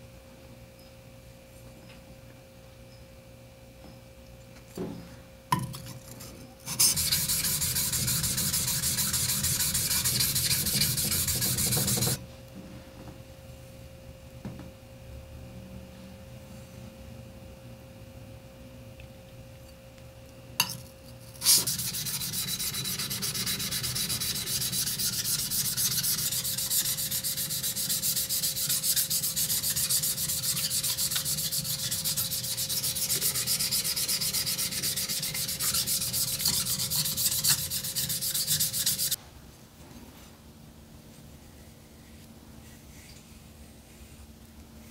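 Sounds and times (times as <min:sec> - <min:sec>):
blade scraping on whetstone: 0:05.8 - 0:12.2, 0:21.4 - 0:39.2.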